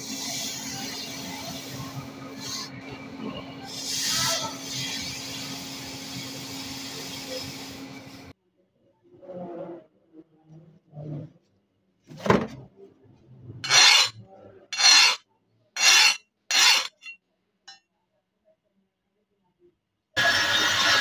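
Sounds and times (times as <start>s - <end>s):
metal tool scraping steel blade: 13.6s - 14.2s, 14.8s - 15.2s, 15.8s - 17.2s.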